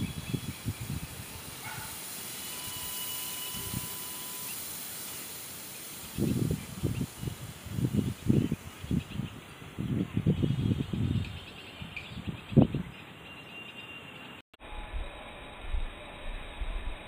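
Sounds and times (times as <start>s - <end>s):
smoke cracker hissing: 0.0s - 11.0s.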